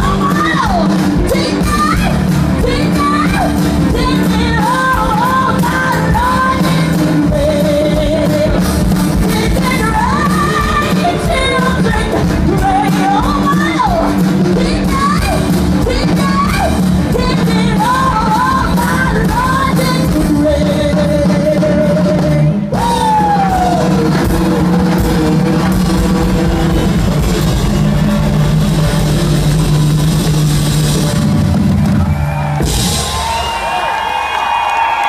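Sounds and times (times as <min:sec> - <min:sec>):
woman singing lead: 0:00.0 - 0:24.2
drums: 0:00.0 - 0:35.0
band holding a long chord: 0:23.6 - 0:33.3.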